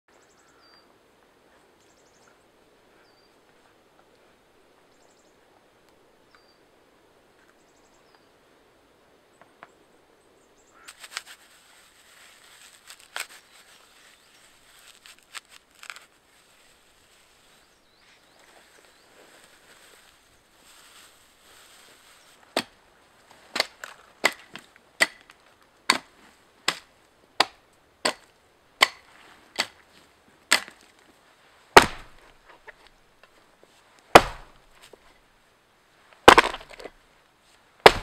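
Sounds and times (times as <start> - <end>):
bird chirping: 0.1 - 0.9, 1.5 - 3.4, 4.9 - 5.4, 6.2 - 6.7, 7.5 - 8.3
clicks and rustles of handling: 10.9 - 16.1.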